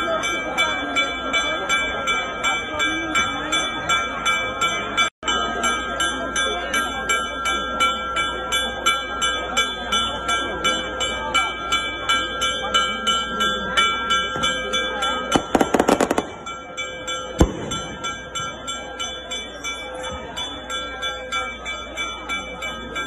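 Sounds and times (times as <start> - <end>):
crowd murmur: 0.0 - 23.0
sharp cracks: 15.4 - 16.4.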